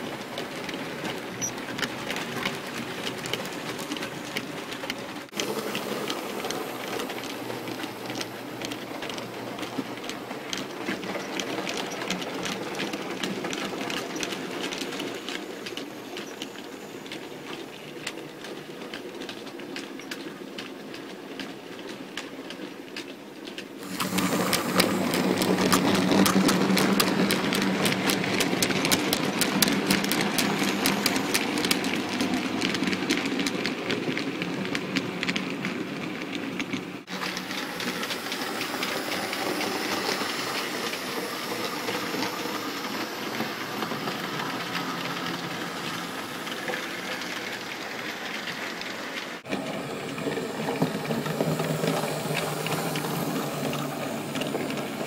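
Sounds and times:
wheels clicking over rail joints: 0.0 - 55.0
model train motor hum: 23.8 - 33.7, 37.1 - 55.0.

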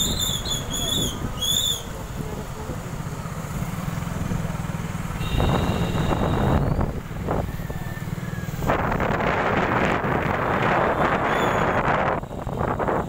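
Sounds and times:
motorbike engine and road rumble: 0.0 - 13.0
wind on microphone: 5.4 - 13.0.

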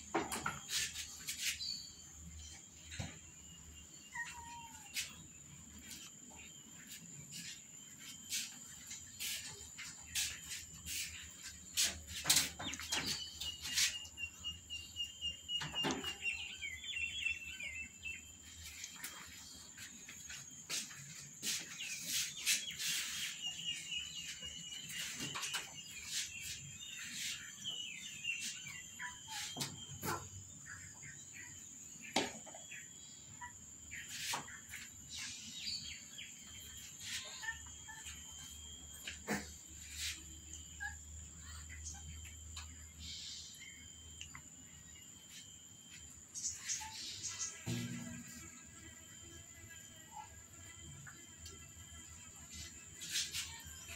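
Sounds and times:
bird chirping in trills: 0.6 - 49.1.

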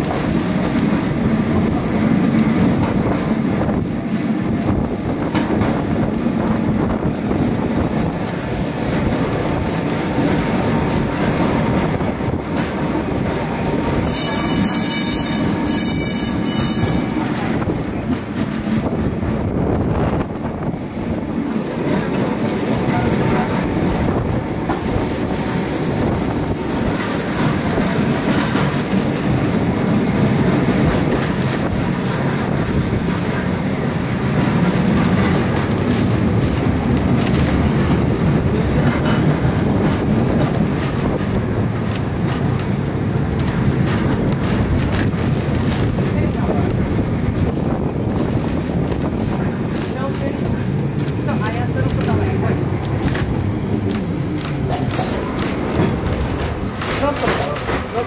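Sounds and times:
tram rumbling on rails: 0.0 - 58.0
high-pitched wheel squeal: 14.0 - 17.1.

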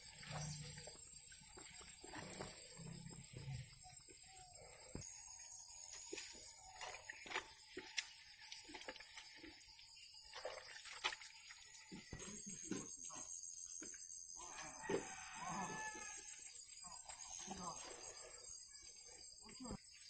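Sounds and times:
water splashing: 5.9 - 11.8.

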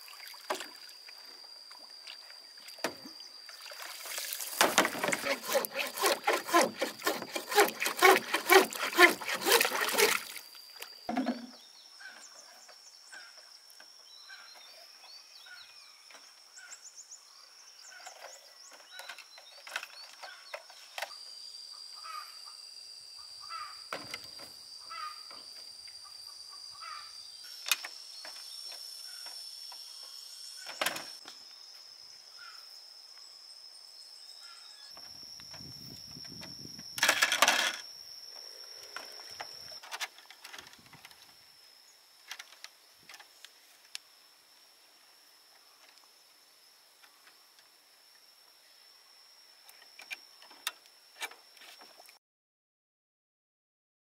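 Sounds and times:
hand saw cutting bamboo: 4.6 - 10.4.

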